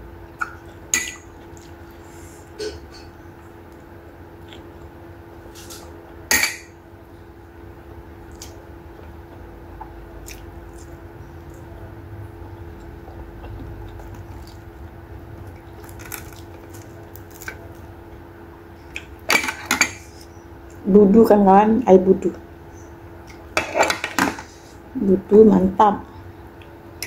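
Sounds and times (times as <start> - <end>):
faint hum: 0.0 - 27.0
fingers eating rice from a plate: 3.6 - 4.9
dishware clink: 6.3 - 6.8.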